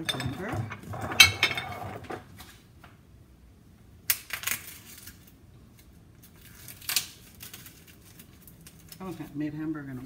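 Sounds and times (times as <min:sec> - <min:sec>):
kitchen items clicking and knocking: 0:00.0 - 0:02.3.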